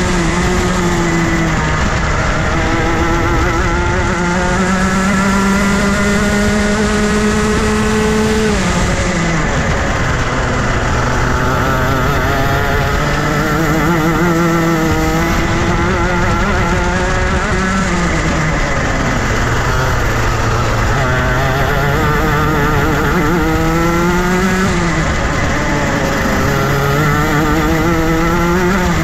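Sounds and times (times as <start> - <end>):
kart engine revving: 0.0 - 29.0.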